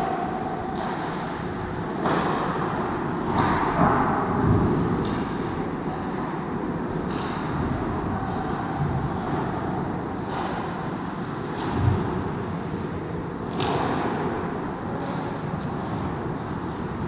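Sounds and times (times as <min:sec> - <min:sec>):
hockey rink ambience: 0:00.0 - 0:17.0
hockey sticks and puck knocks: 0:02.0 - 0:05.5, 0:13.5 - 0:14.2.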